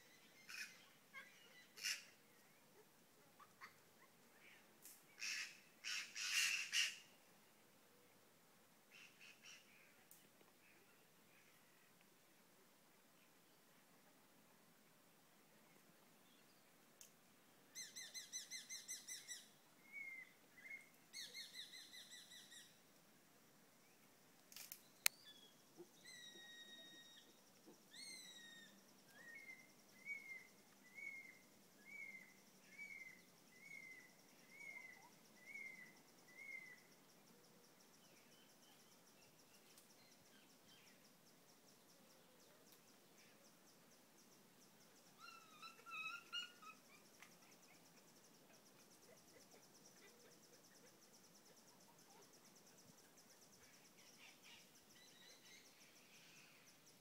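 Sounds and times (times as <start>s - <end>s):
birds chirping and trilling: 0.0s - 2.6s, 17.8s - 22.8s, 25.0s - 37.0s, 45.0s - 48.4s, 53.6s - 57.0s.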